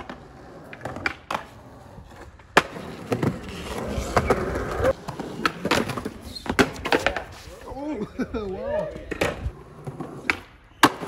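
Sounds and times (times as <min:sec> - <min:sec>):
skateboard clacking: 0:00.0 - 0:07.7, 0:08.5 - 0:11.0
wheels rolling over concrete: 0:00.0 - 0:07.8.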